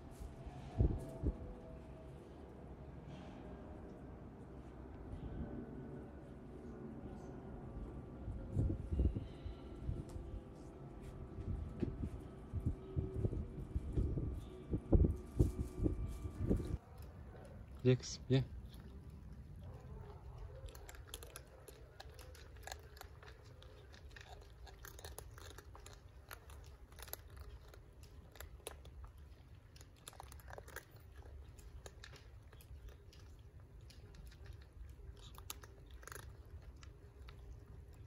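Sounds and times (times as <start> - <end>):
cats crunching kibble: 8.4 - 38.0.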